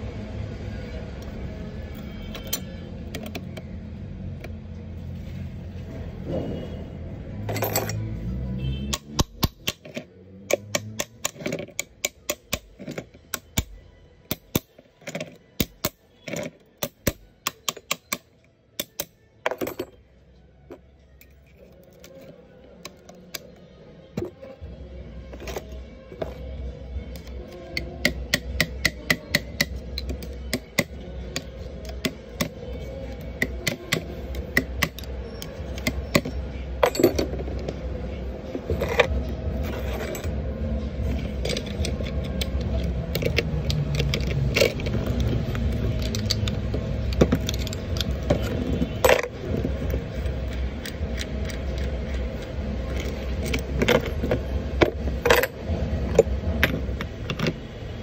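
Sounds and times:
metal clicking and clinking: 0:07.5 - 0:08.1, 0:27.2 - 0:37.8, 0:41.1 - 0:57.6.

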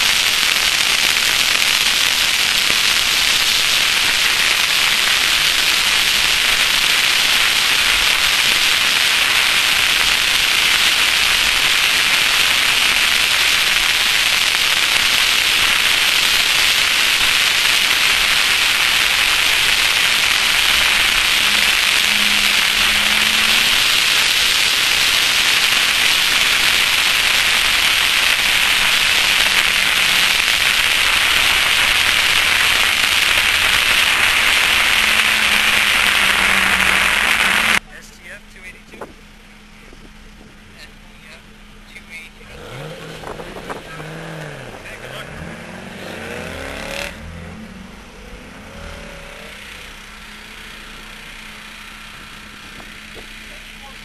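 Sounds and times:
wind rushing over camera: 0:42.9 - 0:45.0.

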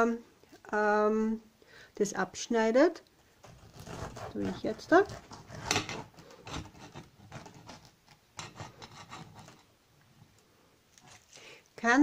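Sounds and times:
knife sawing through pineapple: 0:03.4 - 0:07.9.

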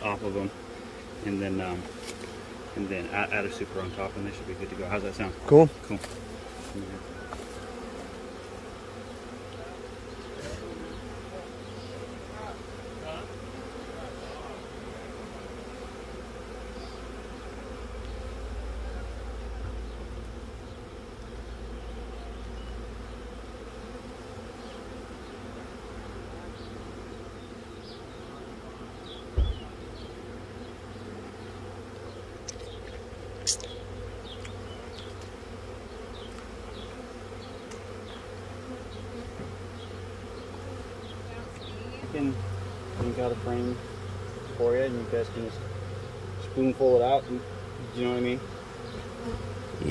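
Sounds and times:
bees buzzing: 0:00.0 - 0:49.9
dull knock: 0:29.4 - 0:29.6.

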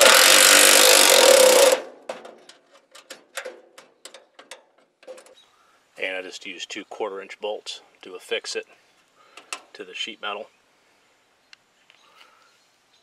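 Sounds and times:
cordless ratchet spinning: 0:00.0 - 0:01.8
sharp ratchet clicks: 0:00.0 - 0:01.8.

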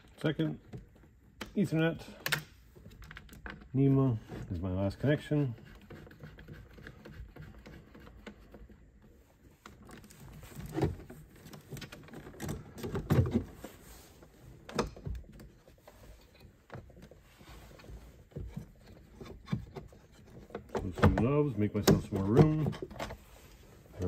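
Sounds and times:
plastic knocks and clunks: 0:09.9 - 0:13.7, 0:18.2 - 0:23.2.

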